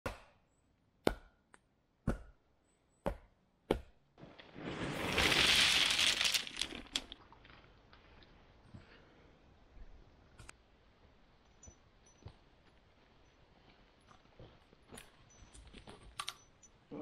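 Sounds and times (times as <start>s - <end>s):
gravel pouring onto stones: 4.2s - 7.8s.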